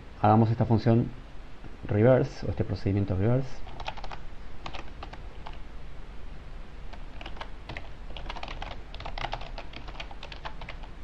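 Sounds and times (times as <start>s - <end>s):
typing on computer keyboard: 3.7s - 5.6s, 6.9s - 10.9s.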